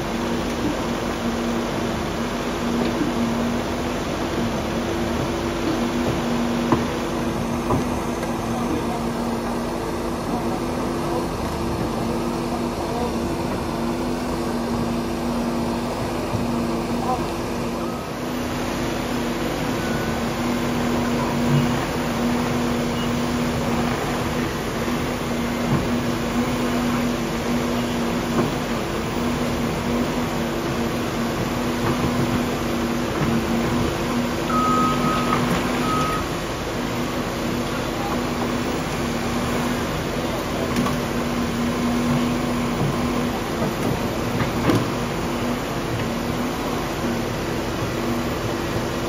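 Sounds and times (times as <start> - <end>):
excavator diesel engine running: 0.0 - 49.0
short high beeps: 34.5 - 36.3.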